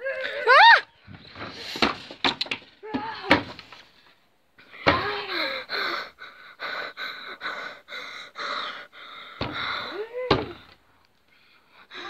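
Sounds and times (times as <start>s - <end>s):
person panting heavily: 5.2s - 10.1s.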